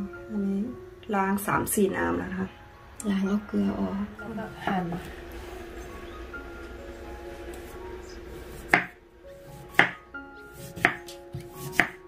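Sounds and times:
background music: 0.0s - 12.0s
knife chopping on cutting board: 8.4s - 12.0s.

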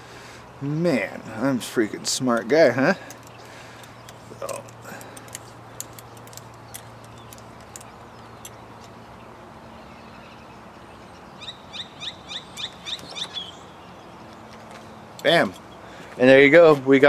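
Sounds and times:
allen key metallic clicks: 2.3s - 9.0s
bird chirping rapidly: 6.5s - 14.3s.

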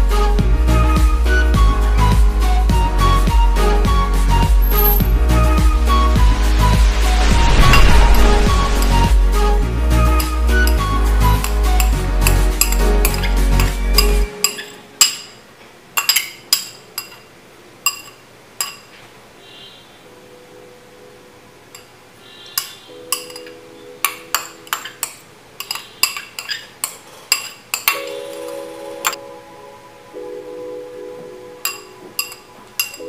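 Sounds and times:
background music: 0.0s - 15.4s, 22.9s - 25.4s, 27.9s - 33.0s
spoon clinking on ceramic bowls: 11.4s - 15.4s, 16.0s - 19.0s, 22.6s - 29.2s, 31.6s - 33.0s.

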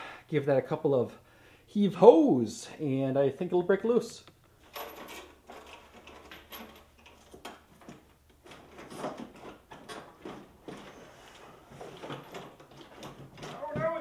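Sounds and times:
chain clinking: 4.6s - 7.6s.

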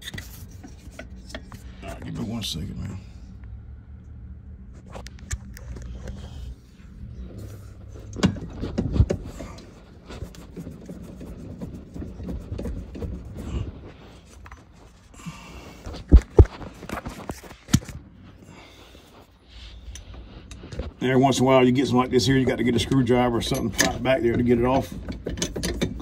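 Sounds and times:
metal brake scraping and rattling: 0.0s - 2.4s, 4.8s - 15.1s, 22.3s - 26.0s.

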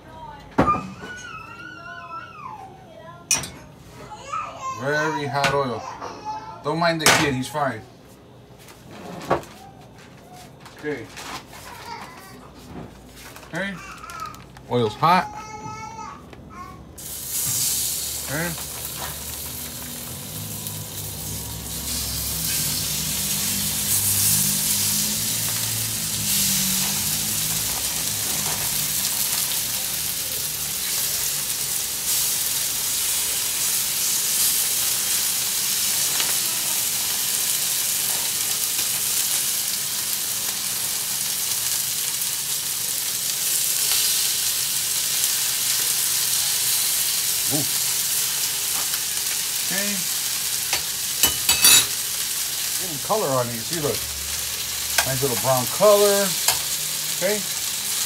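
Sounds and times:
chicken sizzling in hot oil: 17.0s - 58.0s.

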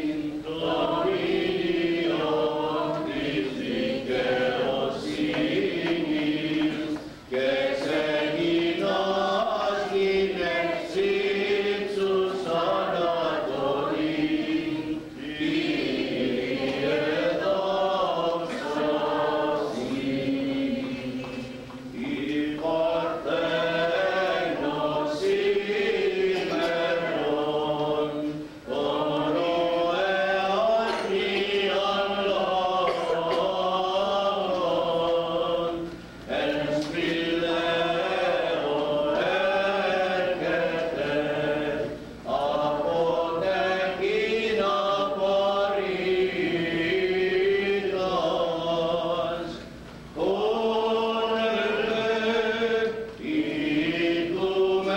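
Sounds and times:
men chanting a hymn: 0.0s - 54.9s.

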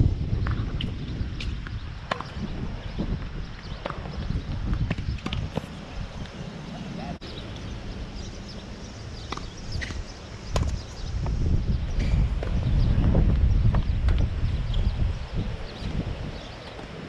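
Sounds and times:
steady low rumble: 0.0s - 17.0s
tennis ball hits and bounces: 4.7s - 5.8s, 9.2s - 10.8s.

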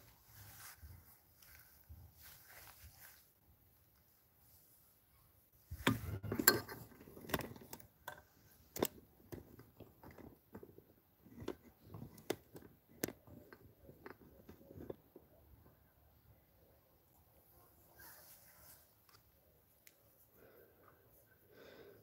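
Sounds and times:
light clicks and knocks: 5.8s - 15.4s.

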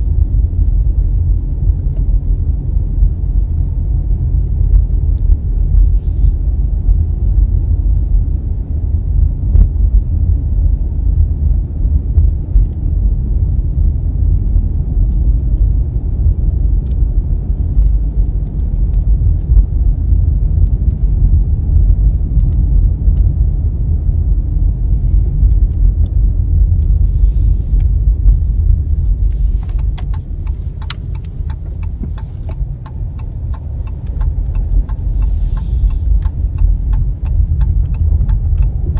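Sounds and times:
road and engine rumble: 0.0s - 38.9s
sharp clicks: 29.8s - 38.9s.

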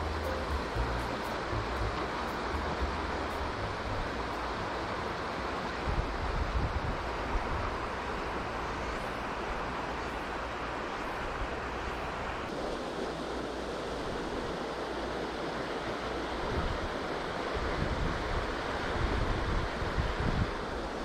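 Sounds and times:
river water flowing: 0.0s - 21.0s
wind buffeting microphone: 5.7s - 9.8s, 12.4s - 21.0s.

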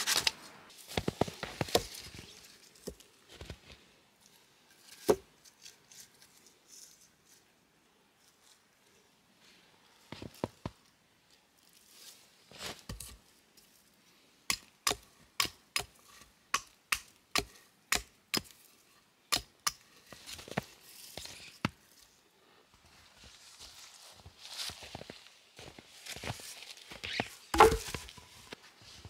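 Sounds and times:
hatchet chopping log: 14.5s - 15.9s, 16.5s - 18.5s, 19.3s - 19.8s, 27.6s - 28.1s.

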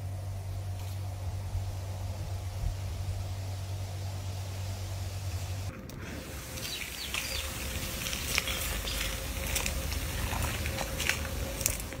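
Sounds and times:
foam fizzing with crackling hiss: 1.8s - 12.0s.

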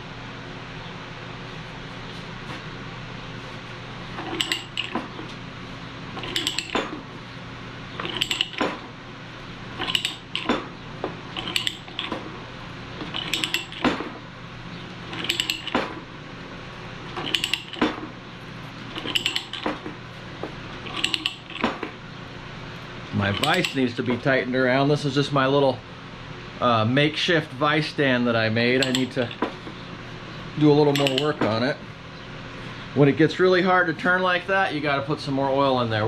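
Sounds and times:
ratchet clicking: 9.8s - 10.5s, 11.4s - 12.2s, 13.0s - 13.9s, 17.1s - 17.9s, 20.8s - 21.7s, 23.3s - 23.8s.

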